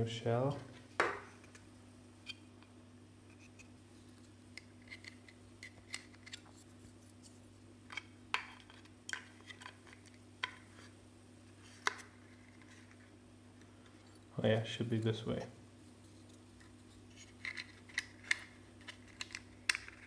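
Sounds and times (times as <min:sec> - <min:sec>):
plastic parts clicking and tapping: 0:17.4 - 0:20.0.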